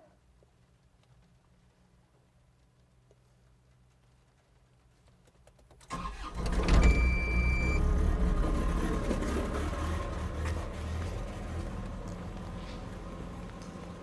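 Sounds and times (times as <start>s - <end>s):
engine starting and rumbling: 5.8s - 14.0s
brief high beep: 6.8s - 7.8s.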